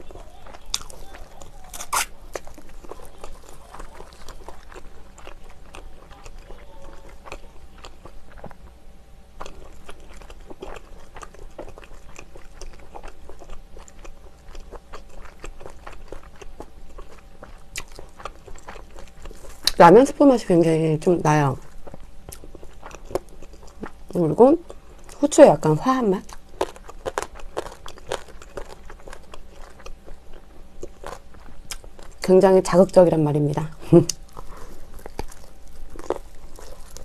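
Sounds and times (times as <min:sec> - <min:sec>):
chewing crunchy fried chicken: 0:00.0 - 0:08.8, 0:09.4 - 0:37.0.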